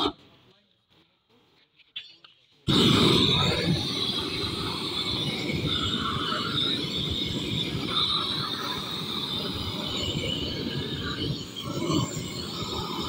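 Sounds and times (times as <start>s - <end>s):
blowtorch flame rushing: 2.6s - 13.0s.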